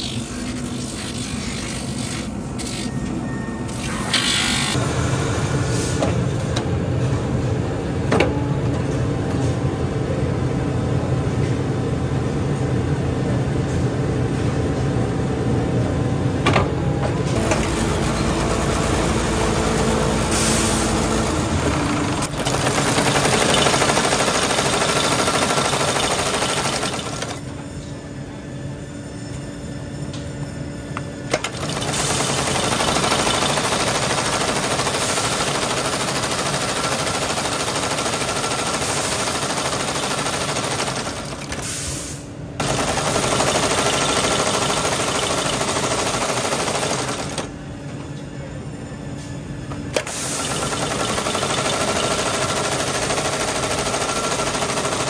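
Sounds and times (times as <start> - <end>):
industrial sewing machine stitching: 17.3 - 27.5, 31.3 - 41.7, 42.6 - 47.5, 50.0 - 55.0.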